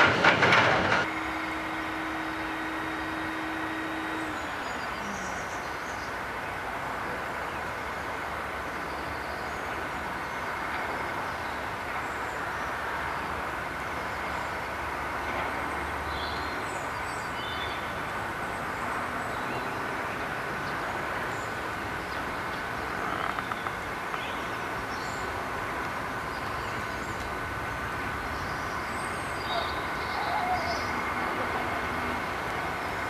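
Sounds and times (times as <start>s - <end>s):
diesel locomotive engine running: 0.0s - 33.0s
birds chirping: 16.1s - 32.2s.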